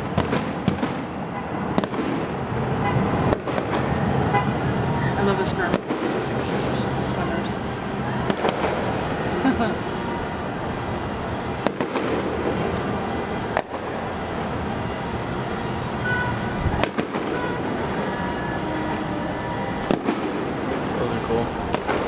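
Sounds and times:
fireworks crackle and rumble: 0.0s - 22.0s.

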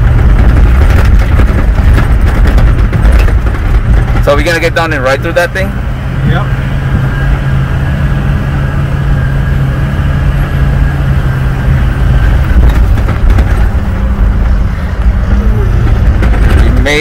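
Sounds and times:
vehicle knocks and rattles: 0.0s - 5.6s, 11.5s - 17.0s
vehicle engine hum from inside cab: 0.0s - 17.0s.

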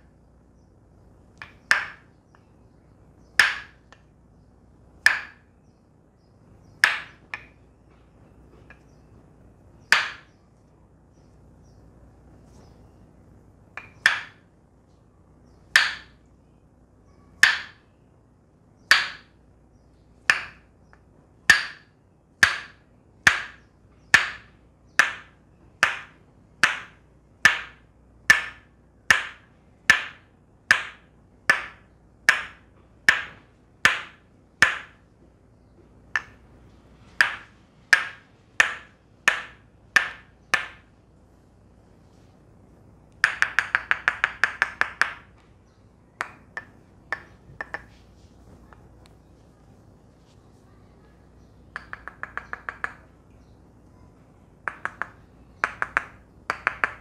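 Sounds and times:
wooden mallet knocking on wood: 1.4s - 2.5s, 3.4s - 4.0s, 5.0s - 5.5s, 6.8s - 9.0s, 9.8s - 10.4s, 13.8s - 14.4s, 15.7s - 16.2s, 17.4s - 17.8s, 18.9s - 19.3s, 20.2s - 20.7s, 21.5s - 35.2s, 36.1s - 36.5s, 37.1s - 40.9s, 43.2s - 45.4s, 46.2s - 48.0s, 51.7s - 53.1s, 54.6s - 57.0s.

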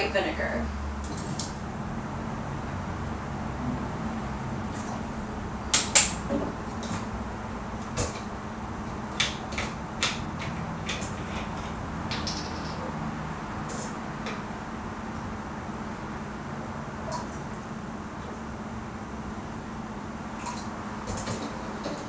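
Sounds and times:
steady low hum: 0.0s - 22.0s
spoons and bottles clinking: 11.2s - 12.9s.

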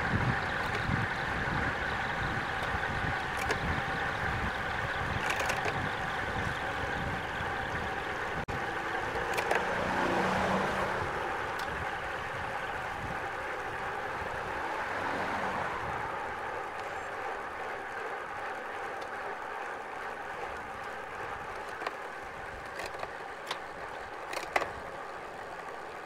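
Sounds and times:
bike tyres on tarmac: 0.0s - 26.0s
faint clicks: 18.4s - 19.7s.

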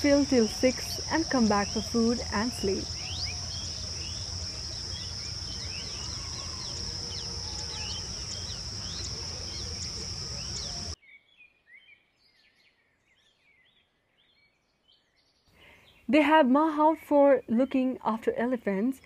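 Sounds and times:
insect drone: 0.0s - 11.0s
bird chirps: 0.0s - 16.1s.

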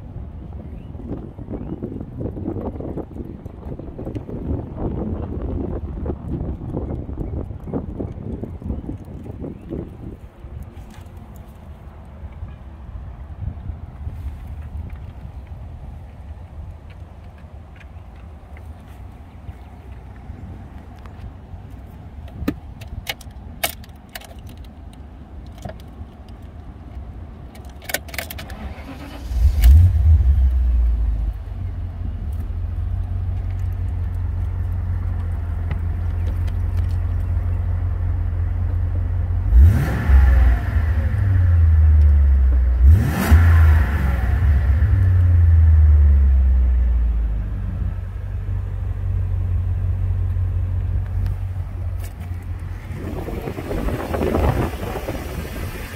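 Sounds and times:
engine revving: 28.5s - 31.3s, 39.4s - 46.5s
car engine idling: 28.6s - 55.9s.

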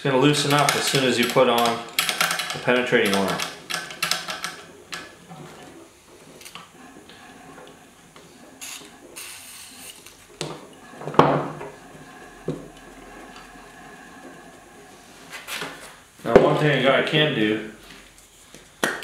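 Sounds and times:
metal clicks and knocks: 0.4s - 5.7s.

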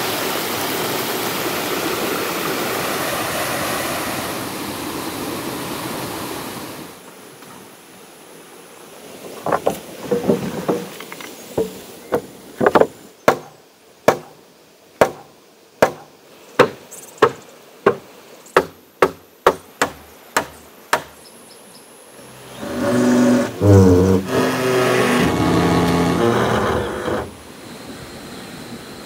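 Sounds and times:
axe chopping wood: 12.2s - 14.4s, 15.0s - 18.0s, 18.6s - 21.2s.

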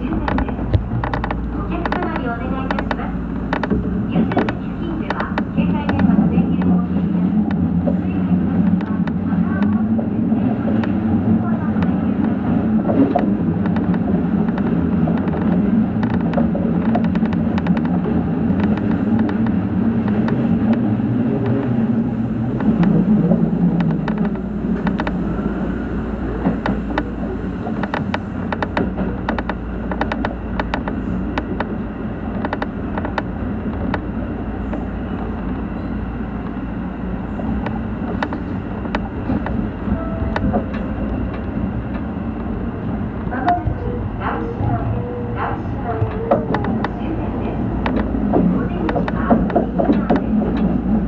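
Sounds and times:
light clicks and rattles: 0.0s - 8.0s
electric train running hum: 0.0s - 51.0s.

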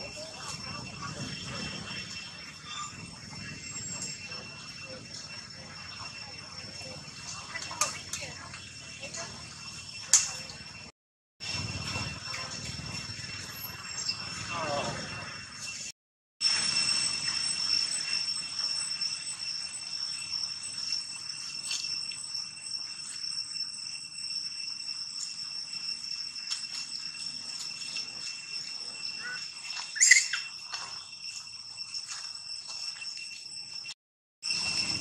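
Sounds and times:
loud chirping call: 29.2s - 30.6s.

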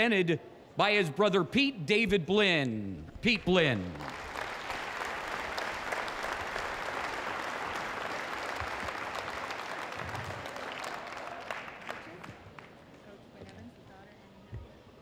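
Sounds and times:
crowd applauding: 3.7s - 13.0s.

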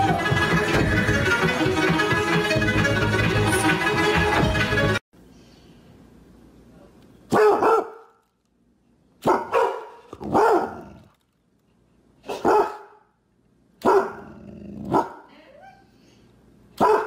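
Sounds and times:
dog barking: 7.3s - 8.2s, 9.2s - 10.8s, 12.2s - 13.1s, 13.8s - 14.3s, 14.9s - 15.3s, 16.8s - 17.0s.

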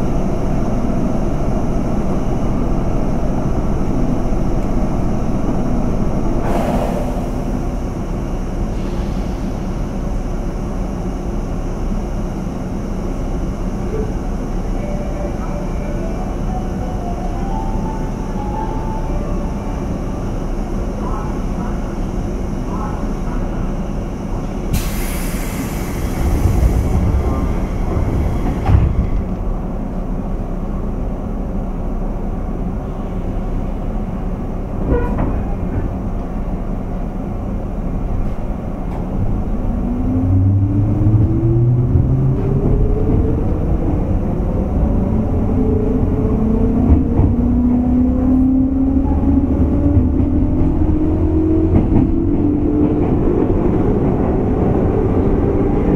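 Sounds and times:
train rumble: 0.0s - 55.9s
air hiss: 24.7s - 26.8s.

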